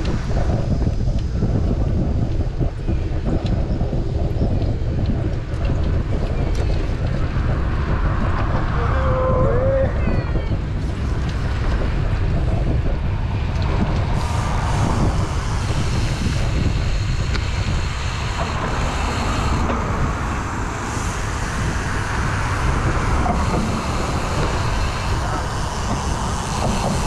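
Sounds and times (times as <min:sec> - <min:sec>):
wind buffeting microphone: 0:00.0 - 0:27.0
road traffic noise: 0:05.4 - 0:27.0.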